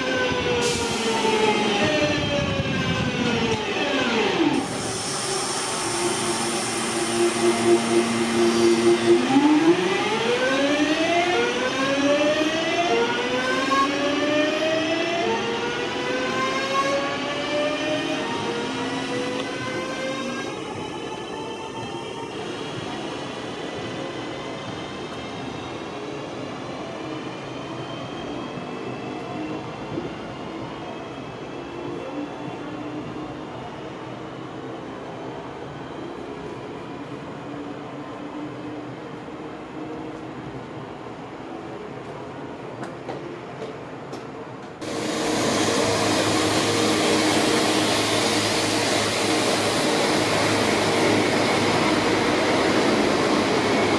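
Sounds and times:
train wheels rumbling on rails: 41.8 - 53.9.

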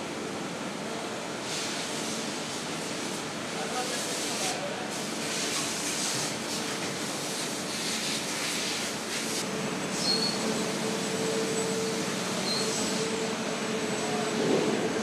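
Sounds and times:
machinery mechanical hum: 0.0 - 15.0
hiss: 1.5 - 2.6, 3.8 - 10.5.

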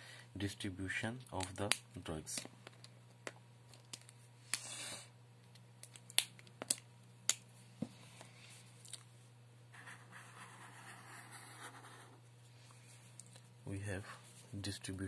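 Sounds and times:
steady low hum: 0.0 - 15.0
felt-tip marker scratching paper: 9.7 - 12.2.

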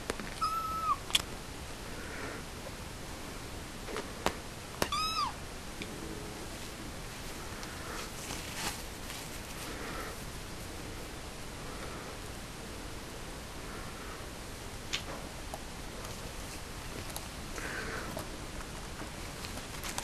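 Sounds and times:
kitten meowing: 0.4 - 1.0, 4.8 - 5.4.

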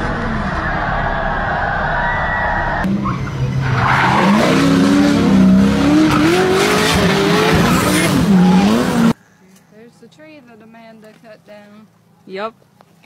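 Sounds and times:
car engine revving: 0.0 - 9.2
tyres squealing and skidding: 0.0 - 9.2.

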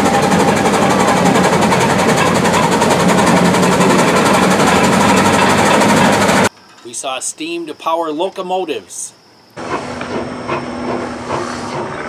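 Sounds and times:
steam roller running: 0.0 - 6.5, 9.6 - 12.0.

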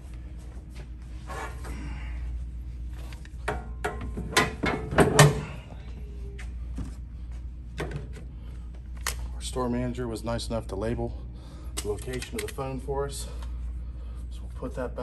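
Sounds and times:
steady low hum: 0.0 - 15.0
clicks and knocks of hardware: 11.8 - 12.6.

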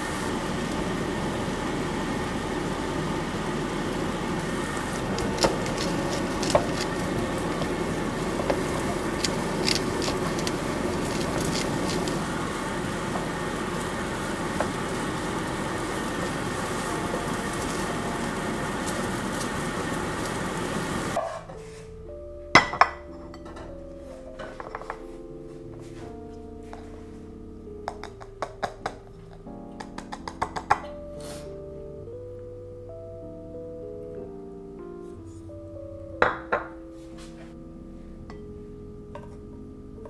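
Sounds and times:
rice sizzling in a pan: 0.0 - 21.2
soft music: 0.0 - 40.0.

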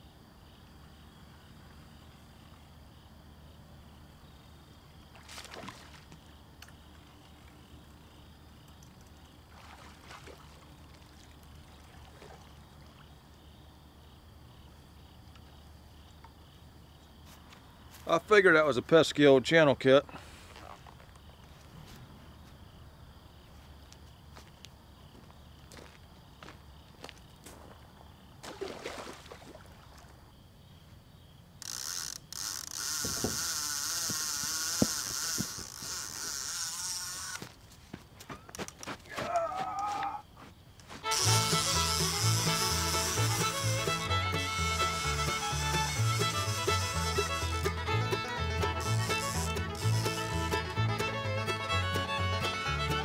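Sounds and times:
water splashing: 5.1 - 6.3, 9.4 - 13.1, 28.4 - 30.2
fishing reel ratcheting: 31.6 - 37.4, 41.1 - 47.8, 48.6 - 50.6.

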